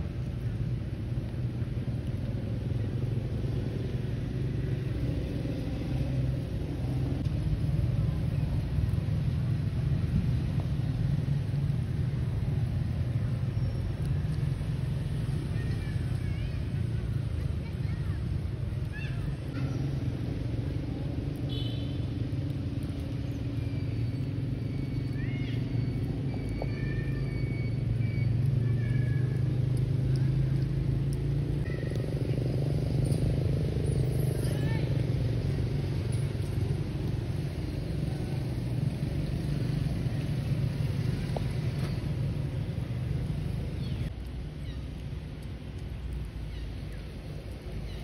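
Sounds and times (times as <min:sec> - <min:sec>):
steady low rumble: 0:00.0 - 0:21.5
low motor rumble and hum: 0:16.5 - 0:48.0.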